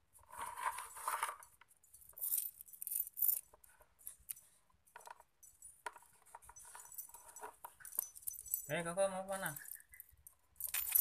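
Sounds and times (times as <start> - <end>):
metal chain clinking: 1.2 - 3.6, 4.3 - 11.0.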